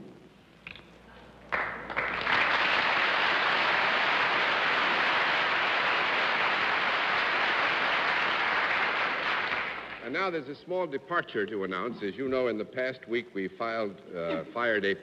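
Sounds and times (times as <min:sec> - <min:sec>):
studio audience applauding: 0:01.5 - 0:10.1.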